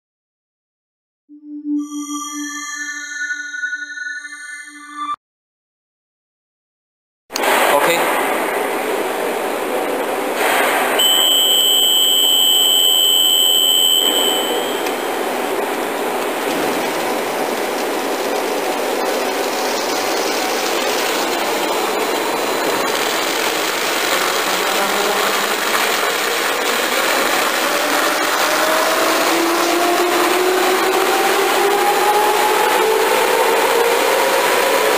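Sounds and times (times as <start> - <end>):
machine whine rising in pitch: 10.9 - 34.9
high electronic beep: 11.0 - 14.9
machine whirring: 13.9 - 34.9.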